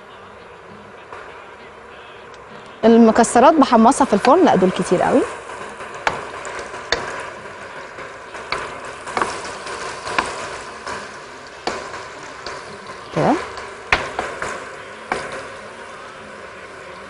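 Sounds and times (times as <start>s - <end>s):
butter sizzling in oil: 2.8s - 17.0s
wooden spoon knocking pot: 3.2s - 15.6s.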